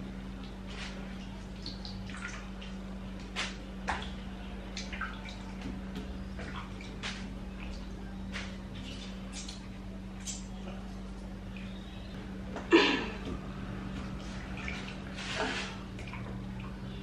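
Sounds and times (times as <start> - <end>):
steady low hum: 0.0 - 17.0
water drips and splashes: 0.3 - 10.7, 13.9 - 17.0.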